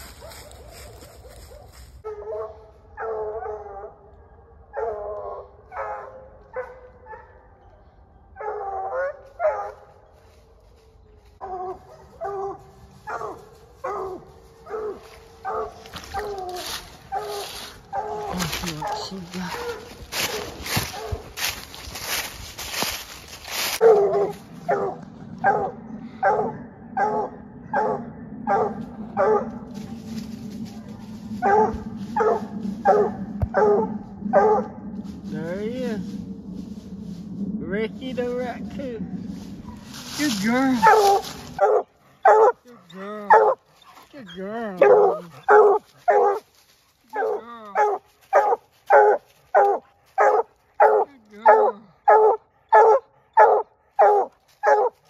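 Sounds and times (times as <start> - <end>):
dog barking: 0.1 - 4.1, 4.7 - 7.5, 8.4 - 9.8, 11.7 - 21.6, 23.8 - 29.8, 30.7 - 34.8, 40.8 - 42.7, 43.3 - 43.6, 44.8 - 46.5, 47.1 - 55.0
loud rustle: 39.2 - 41.6.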